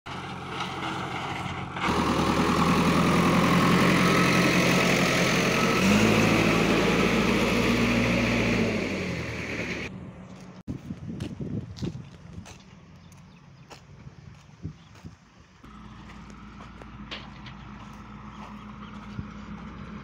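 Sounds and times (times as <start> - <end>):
diesel engine running: 0.1 - 10.7, 15.4 - 20.0.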